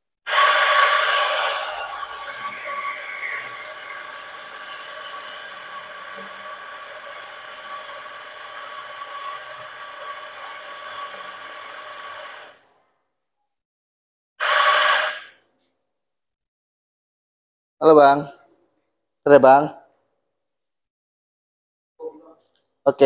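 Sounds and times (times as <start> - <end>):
coffee grinder motor whirring: 0.3 - 12.6, 14.4 - 15.3.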